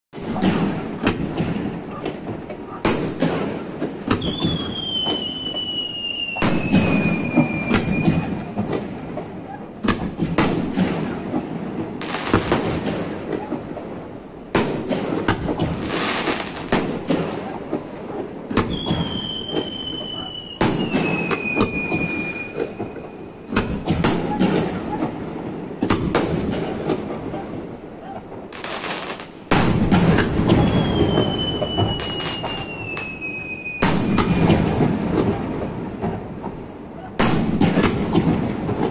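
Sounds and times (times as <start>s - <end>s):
firework shells booming: 0.2s - 38.9s
fireworks crackling: 0.2s - 38.9s
falling firework whistle: 4.1s - 8.8s, 18.6s - 25.2s, 28.8s - 36.2s.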